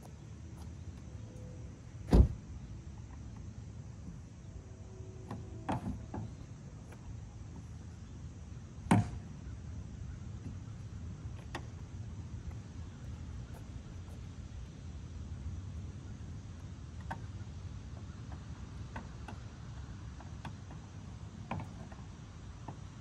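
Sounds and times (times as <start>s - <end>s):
car door shutting: 2.0s - 2.5s.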